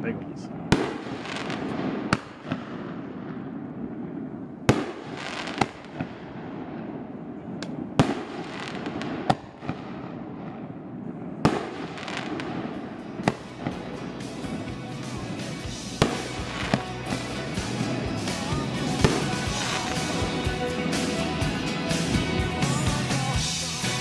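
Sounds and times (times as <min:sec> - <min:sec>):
firework shells bursting: 0:04.6 - 0:06.9, 0:11.4 - 0:14.1, 0:15.9 - 0:20.2.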